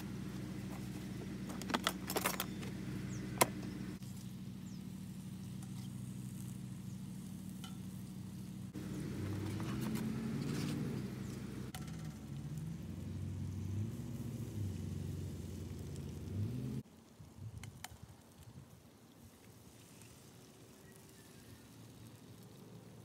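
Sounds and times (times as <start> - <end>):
steady low hum: 0.0 - 16.8.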